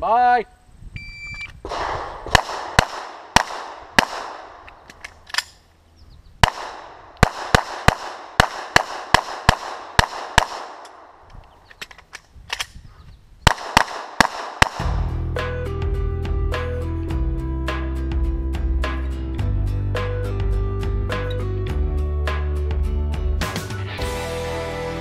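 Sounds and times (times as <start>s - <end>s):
pistol shots with echo: 1.6s - 4.8s, 6.4s - 11.2s, 13.5s - 15.1s.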